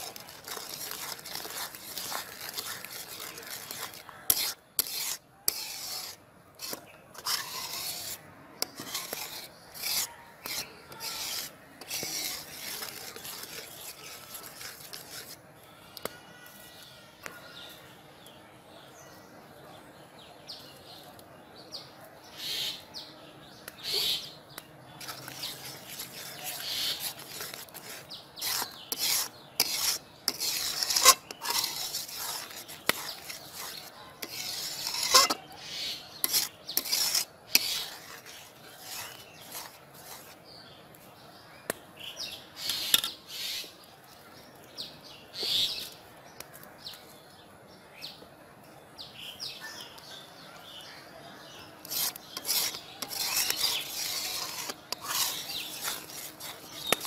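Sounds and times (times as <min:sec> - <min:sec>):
spatula scraping metal pot: 0:00.0 - 0:15.4, 0:25.0 - 0:40.4, 0:42.6 - 0:43.5, 0:51.8 - 0:57.0.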